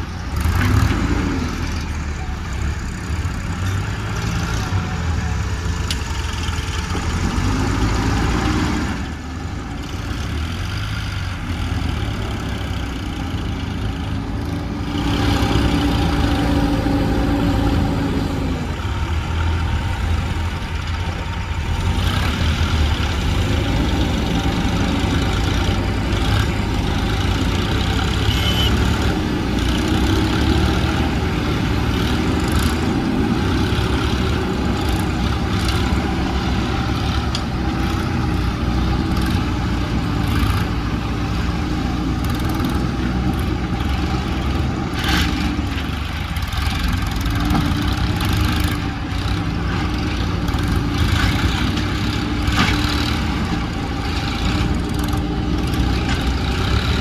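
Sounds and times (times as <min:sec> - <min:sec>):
diesel tractor engine running: 0:00.0 - 0:57.0.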